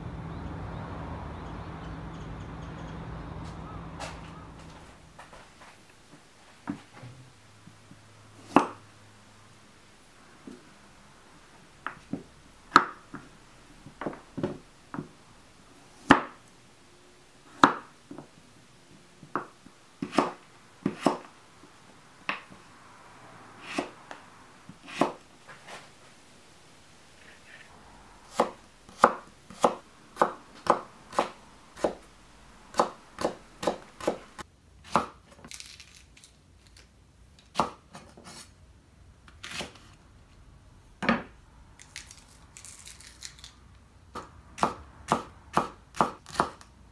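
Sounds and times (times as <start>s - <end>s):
knife cutting carrot on board: 19.4s - 21.3s, 23.6s - 24.0s, 24.7s - 25.2s, 28.3s - 32.0s, 44.2s - 46.6s.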